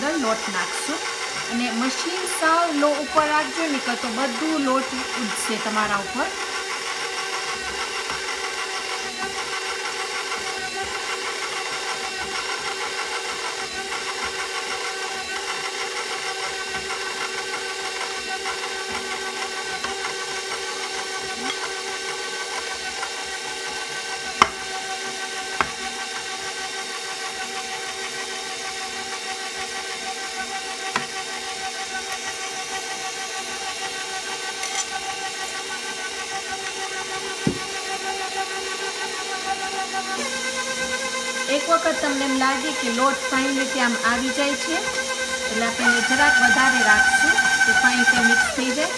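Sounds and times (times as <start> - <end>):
stand mixer motor hum: 0.0 - 48.9.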